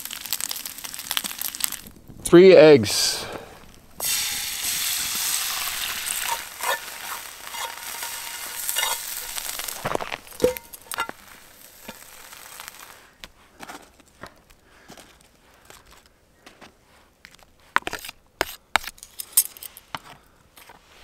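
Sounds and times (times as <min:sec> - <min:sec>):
eggs sizzling in frying pan: 0:00.0 - 0:02.2, 0:03.6 - 0:13.2
utensil scraping and tapping pan: 0:05.7 - 0:11.2.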